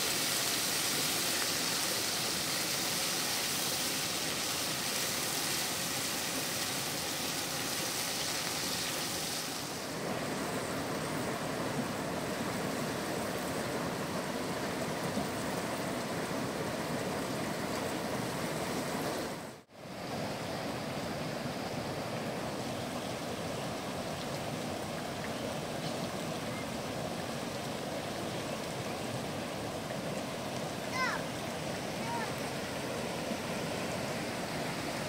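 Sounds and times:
steady rushing outdoor noise: 27.2 - 35.0.

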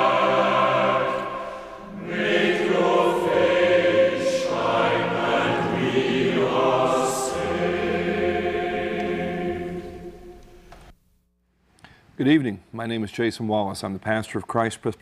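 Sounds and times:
choir singing: 0.0 - 10.9.

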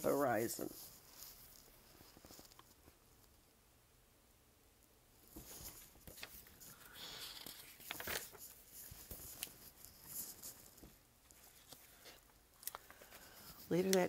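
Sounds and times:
paper pages rustling: 0.6 - 3.0, 5.3 - 14.0.

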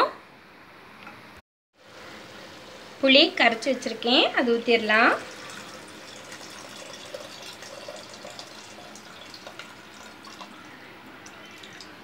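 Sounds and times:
liquid trickling and splashing: 5.0 - 12.0.

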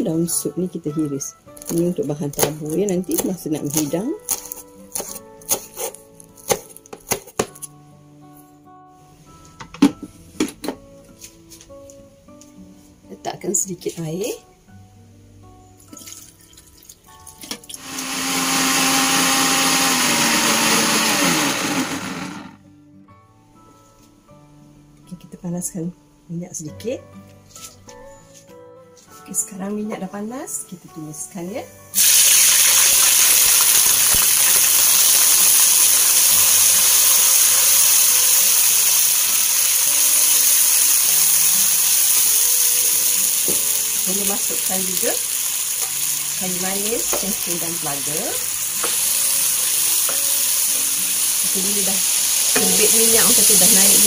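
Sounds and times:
paste sizzling in hot oil: 17.8 - 21.7, 32.0 - 54.0
electric blender running: 17.8 - 22.6, 32.0 - 43.8, 48.6 - 54.0.

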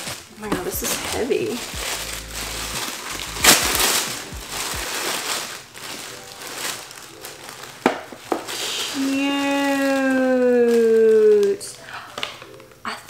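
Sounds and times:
tissue paper crinkling: 0.0 - 11.8
woman saying ooh: 9.0 - 11.6.

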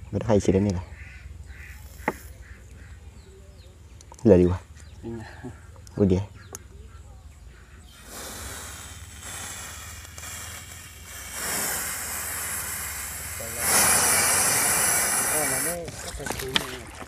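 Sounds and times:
gas hissing from nozzle: 7.9 - 15.9.

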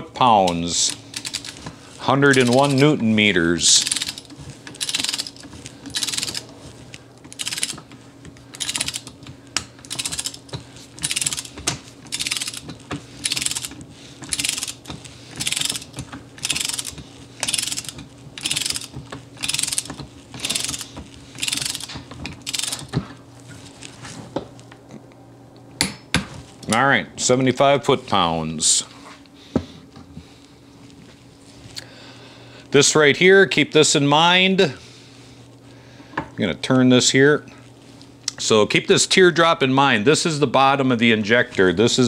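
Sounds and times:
ratcheting torque wrench clicking: 0.5 - 3.0, 3.7 - 6.5, 7.2 - 7.9, 8.5 - 23.0.

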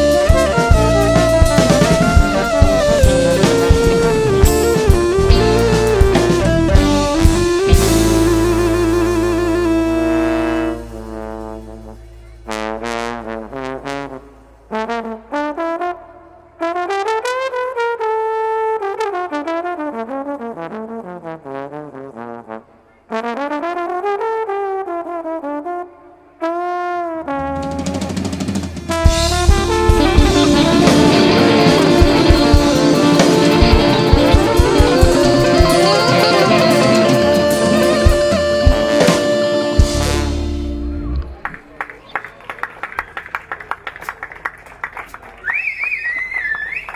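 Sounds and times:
band with drums and guitars: 0.0 - 14.7, 27.4 - 46.9
trombone solo melody: 0.0 - 41.5.

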